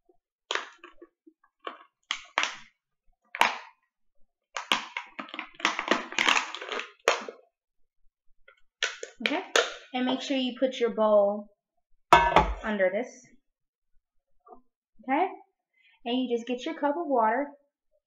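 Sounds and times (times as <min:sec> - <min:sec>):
plastic bottle crinkling: 0:00.5 - 0:02.7, 0:04.6 - 0:07.4.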